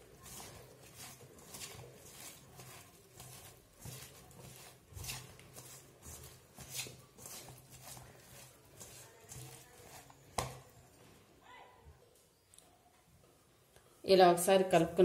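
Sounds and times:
florets rustling in steel bowl: 0.0 - 10.8.

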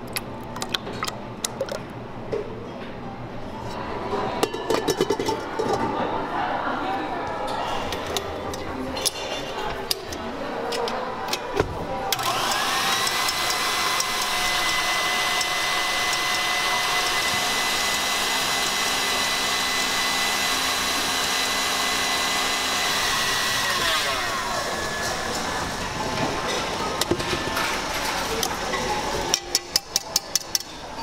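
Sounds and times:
stand mixer motor whining: 12.2 - 25.8.

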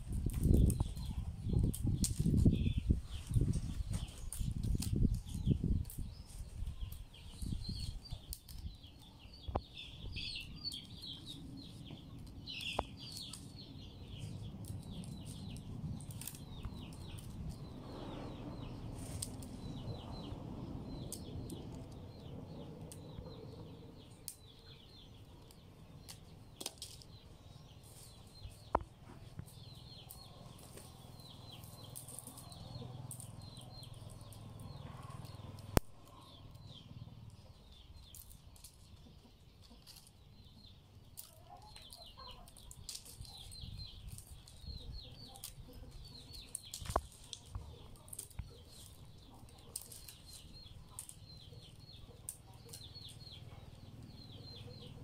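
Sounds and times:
rattan strands rustling: 45.3 - 52.9.

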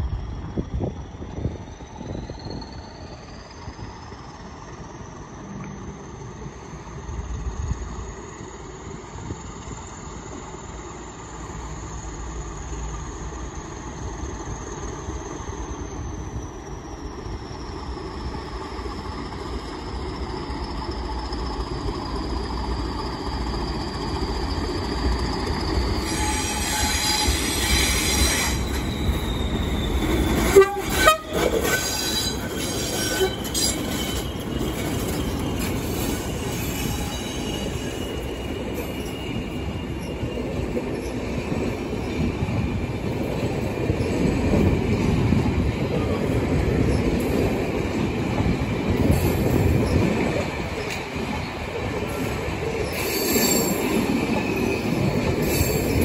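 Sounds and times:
train horn: 26.1 - 28.6, 30.4 - 33.7.

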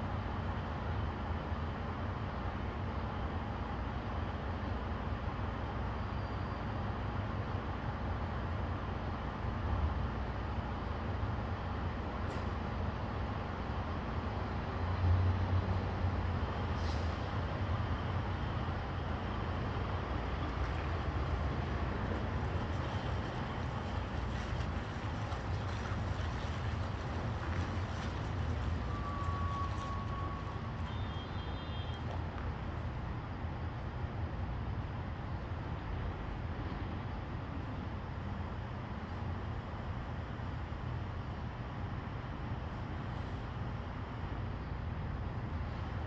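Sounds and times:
diesel truck engine rumbling: 9.9 - 33.9.

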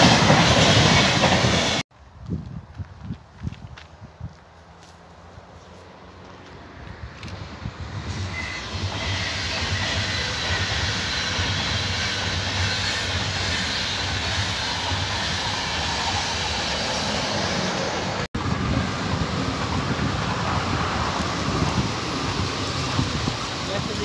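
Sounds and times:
electric train passing close: 0.0 - 1.8, 6.7 - 24.0
passenger train rolling past: 0.0 - 1.8, 6.0 - 24.0.

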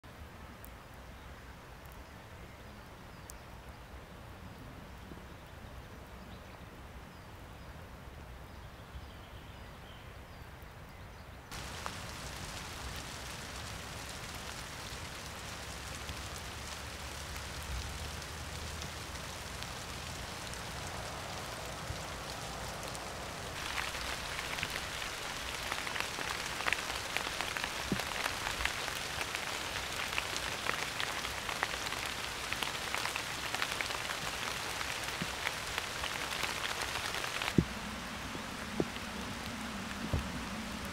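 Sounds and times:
steady rain hiss: 0.0 - 40.9
raindrops ticking: 11.5 - 37.8.

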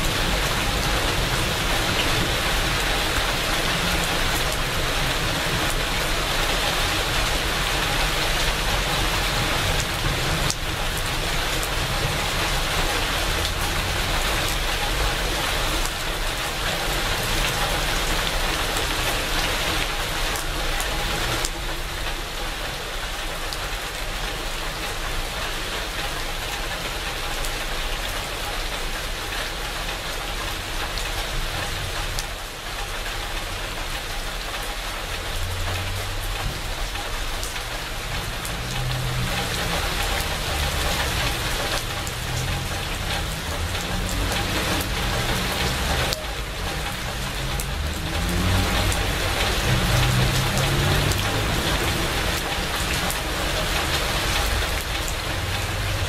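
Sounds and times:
steady rain on shrubs: 0.0 - 56.0.

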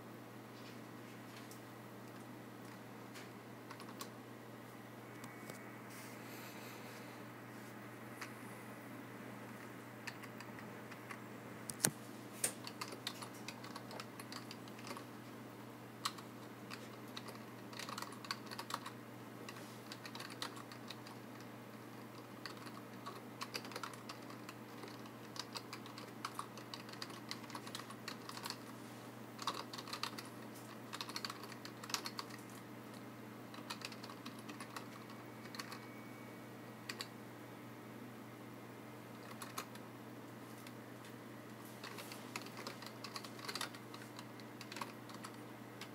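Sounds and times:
faint low hum: 0.0 - 45.9
typing on keyboard: 3.7 - 4.1, 10.0 - 11.2, 12.5 - 15.1, 16.0 - 28.6, 29.4 - 32.6, 33.5 - 36.0, 36.9 - 37.1, 39.2 - 39.8, 41.8 - 45.9.

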